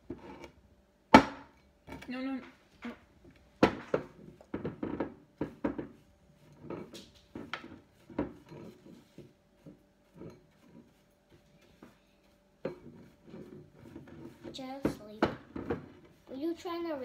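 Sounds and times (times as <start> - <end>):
utensil scraping a plate: 0.1 - 0.6, 4.6 - 16.2.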